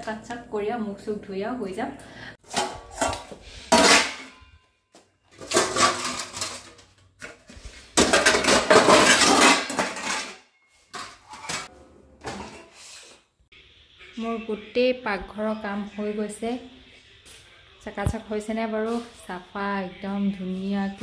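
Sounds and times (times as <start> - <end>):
utensils and dishes clattering: 2.4 - 4.7, 5.3 - 13.2.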